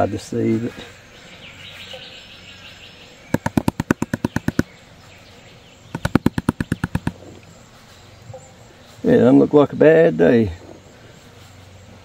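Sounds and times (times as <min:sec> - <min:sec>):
hand tapping plastic pan rim: 0:03.4 - 0:04.6.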